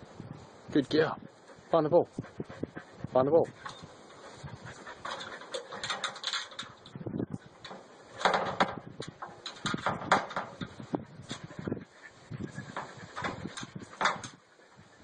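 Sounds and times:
dog claws scraping metal ladder: 0:03.6 - 0:06.9, 0:07.6 - 0:11.6, 0:12.6 - 0:14.4.

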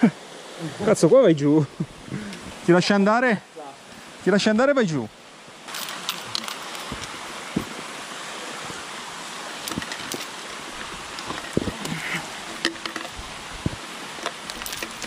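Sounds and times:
rushing mountain stream: 0:00.0 - 0:15.0
boots and chain knocking on rock: 0:05.7 - 0:07.8, 0:09.6 - 0:11.9.

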